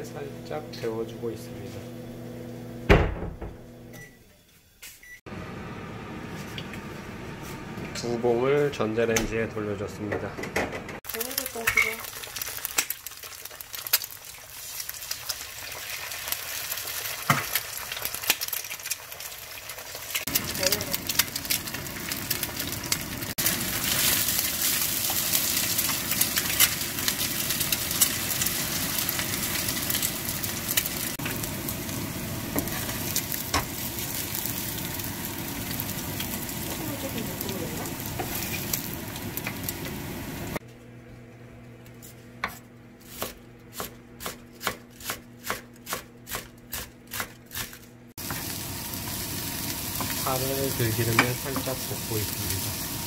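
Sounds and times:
eggs sizzling in oil: 11.0s - 40.6s, 48.1s - 53.0s
knife chopping on wooden board: 42.4s - 47.7s.

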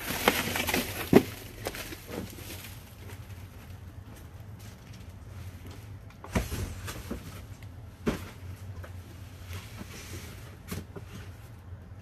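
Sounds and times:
cardboard rustling: 0.0s - 3.7s
cardboard boxes handled: 0.0s - 4.2s.

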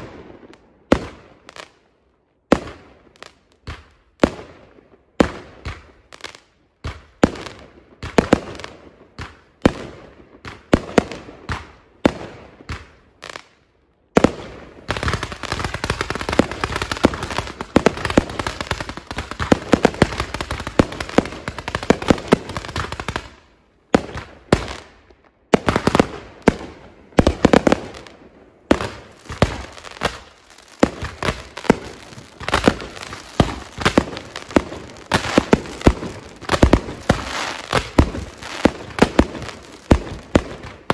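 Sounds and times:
fireworks bangs: 14.2s - 24.9s, 25.5s - 40.9s.

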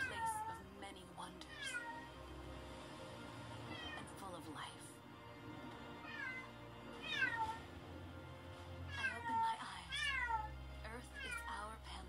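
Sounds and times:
cat meowing: 0.0s - 0.7s, 1.4s - 2.2s, 3.6s - 4.2s, 5.8s - 7.7s, 8.9s - 10.5s, 11.2s - 11.6s.

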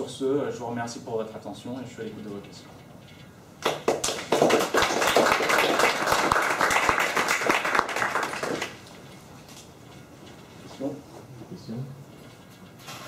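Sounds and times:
audience applauding: 3.6s - 8.8s.

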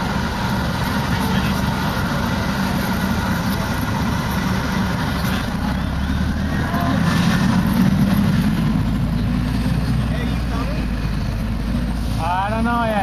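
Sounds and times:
faint voices of passers-by: 0.0s - 13.0s
steady low rumble: 0.0s - 13.0s.

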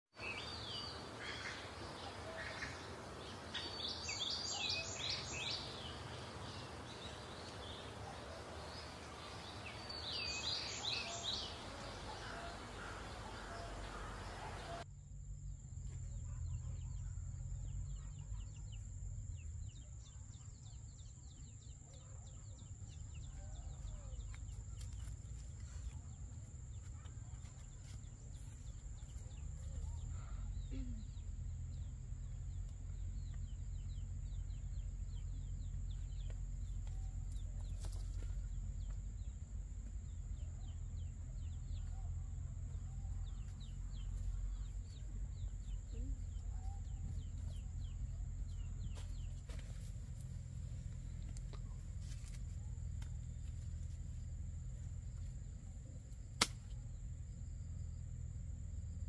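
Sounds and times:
birds chirping: 0.1s - 14.9s, 15.9s - 59.0s.

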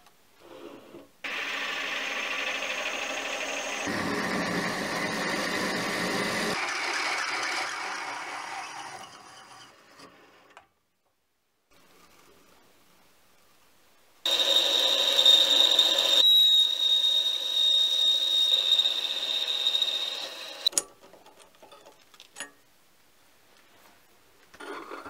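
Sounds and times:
lathe cutting with ringing tone: 1.3s - 9.8s, 14.3s - 20.7s.

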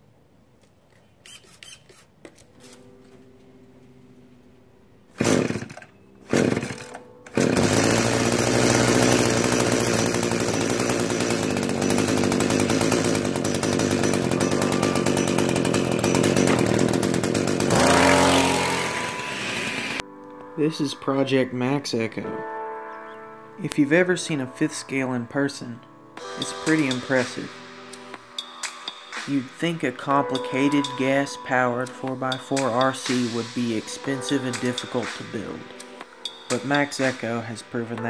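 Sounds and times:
two-stroke engine starting and running: 5.2s - 20.0s, 26.4s - 27.5s.

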